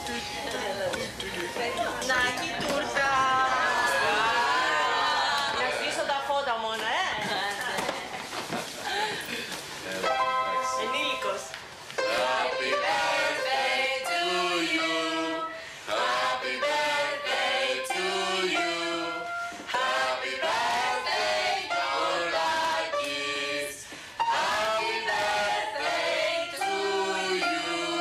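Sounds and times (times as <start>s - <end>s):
choir singing with music: 10.0s - 28.0s.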